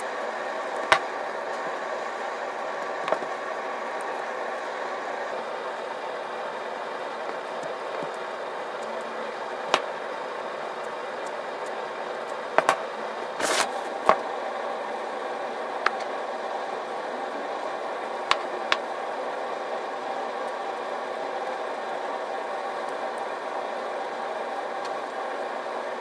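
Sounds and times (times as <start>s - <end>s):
steady background hum: 0.0s - 26.0s
knife cutting sanding disc: 13.4s - 13.9s.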